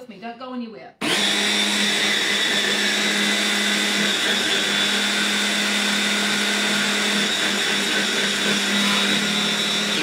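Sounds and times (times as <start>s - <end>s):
stick blender motor whine: 1.0s - 10.0s.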